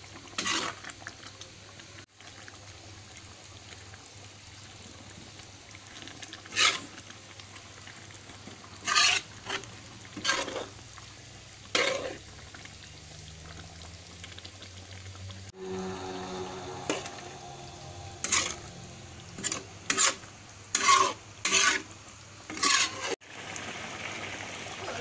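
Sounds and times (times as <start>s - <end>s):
low sizzle: 0.0s - 25.0s
thick stew stirred in a pan: 0.0s - 25.0s
utensil scraping a pan: 0.4s - 0.8s, 6.5s - 7.0s, 8.8s - 10.8s, 11.7s - 12.2s, 15.6s - 23.2s.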